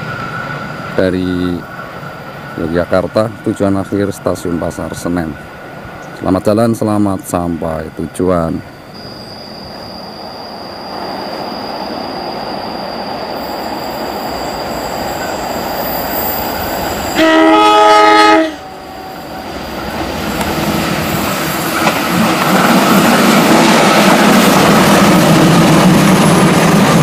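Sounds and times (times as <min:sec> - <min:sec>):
locomotive horn blast: 0:17.1 - 0:19.3
wheels rattling over rails: 0:18.8 - 0:27.0.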